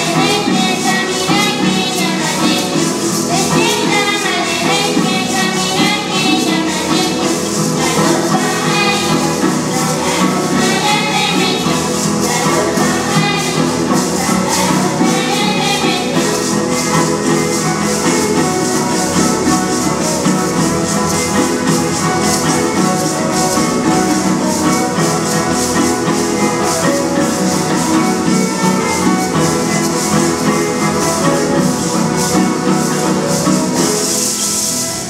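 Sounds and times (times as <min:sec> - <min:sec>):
guitar: 0:00.0 - 0:35.0
high shaking rhythm: 0:00.0 - 0:35.0
violin: 0:00.0 - 0:35.0.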